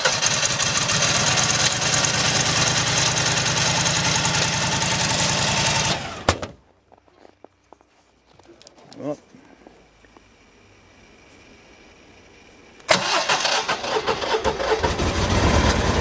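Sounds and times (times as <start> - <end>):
generator starter cranking: 0.0 - 4.4, 12.9 - 16.0.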